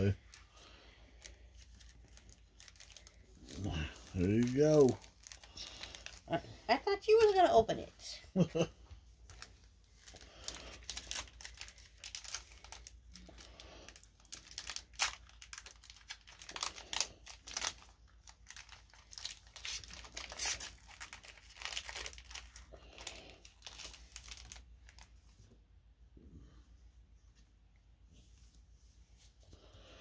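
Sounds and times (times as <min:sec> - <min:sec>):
foil wrapper crinkling and tearing: 0:00.0 - 0:07.7, 0:09.2 - 0:25.2.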